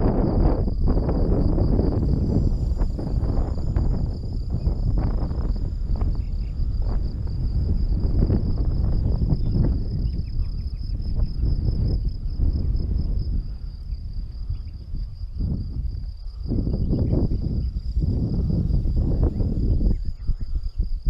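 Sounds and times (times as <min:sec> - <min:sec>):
insects chirring: 0:00.0 - 0:21.0
wind buffeting microphone: 0:00.0 - 0:21.0.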